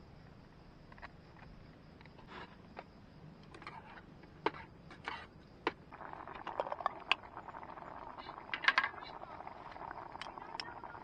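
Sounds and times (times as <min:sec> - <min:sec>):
dense crackling: 0:05.8 - 0:11.0
utensils tapping camping pot: 0:08.4 - 0:09.2.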